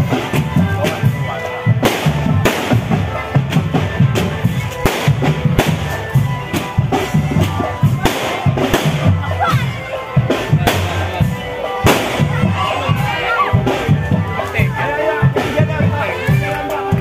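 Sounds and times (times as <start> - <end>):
drum band music: 0.0 - 17.0
sharp drum rim strikes: 11.8 - 12.4.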